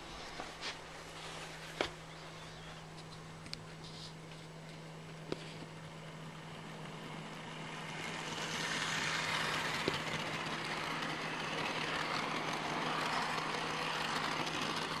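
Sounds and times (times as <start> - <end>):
model train running on track: 5.7 - 15.0.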